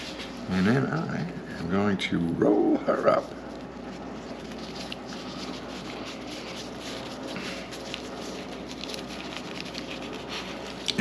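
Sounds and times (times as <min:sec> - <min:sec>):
crisp seaweed sheet crackling: 0:02.2 - 0:11.0.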